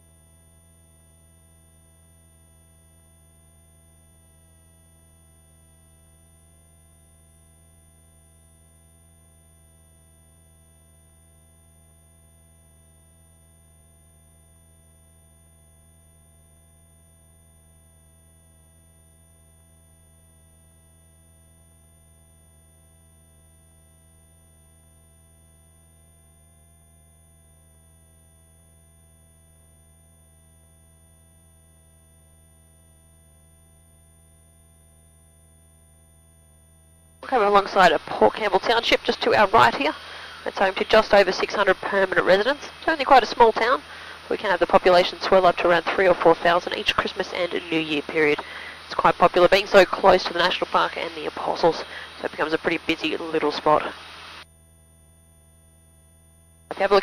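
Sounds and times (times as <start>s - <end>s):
distant helicopter drone: 37.2s - 54.4s
intercom electrical hum: 37.2s - 57.0s.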